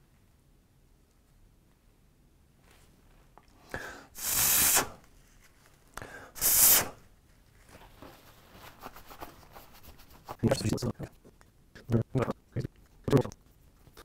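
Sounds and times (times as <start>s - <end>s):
puffs of breath: 3.6s - 5.0s, 6.0s - 7.0s
faint rustling: 5.0s - 6.0s, 7.1s - 11.4s.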